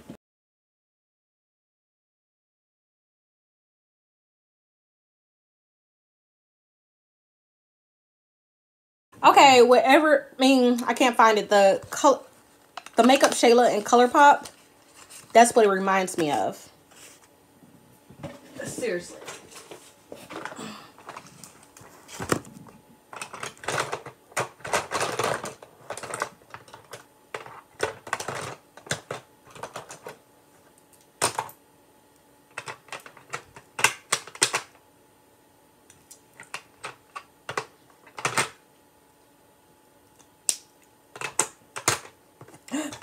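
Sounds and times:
plastic items clicking and clattering: 12.7 - 15.4, 18.2 - 30.2, 31.2 - 31.6, 32.5 - 34.8, 36.1 - 38.6, 41.1 - 43.0
rummaging through plastic bin: 18.1 - 30.2.

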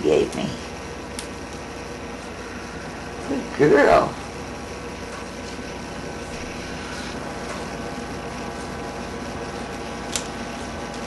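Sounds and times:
room hum and hiss: 0.0 - 11.0.

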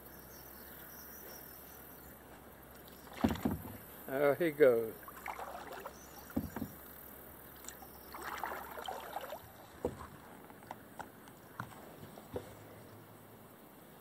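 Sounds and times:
paddle dipping and dripping: 2.3 - 12.5
paddle knocking against hull: 3.0 - 4.0, 5.1 - 7.0, 8.1 - 10.3.

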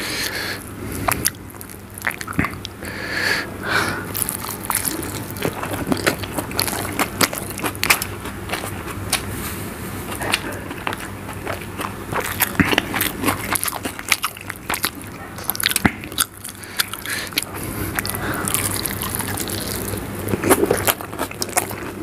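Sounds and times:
man chewing food: 0.0 - 22.0
clicking mouth sounds: 2.0 - 2.8, 10.1 - 15.0, 15.6 - 22.0.

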